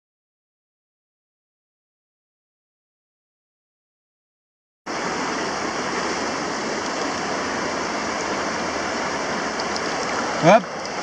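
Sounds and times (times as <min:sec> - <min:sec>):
river water rushing: 0:04.9 - 0:11.0.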